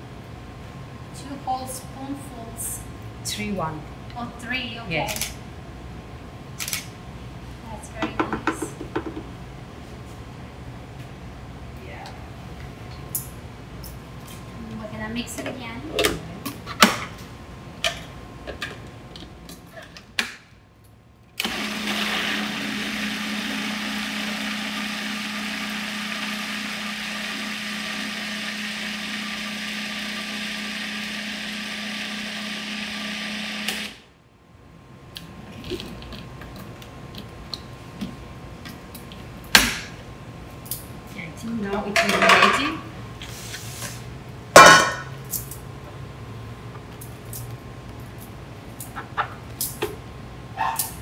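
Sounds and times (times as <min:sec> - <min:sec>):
food processor motor humming: 0:21.4 - 0:34.0.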